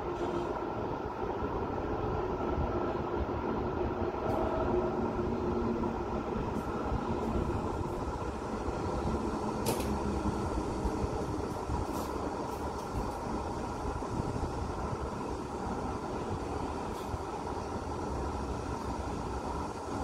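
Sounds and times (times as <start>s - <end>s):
city road traffic rumble: 0.0s - 20.0s.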